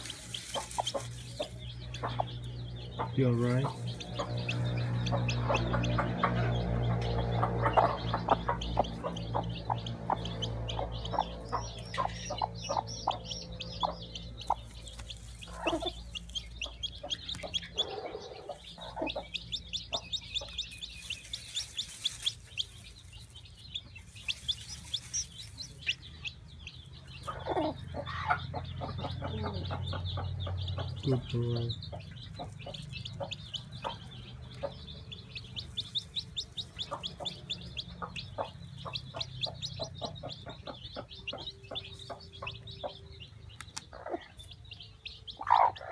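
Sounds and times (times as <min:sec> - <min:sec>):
chick peeping: 0:00.0 - 0:45.9
hen clucking: 0:00.0 - 0:45.9.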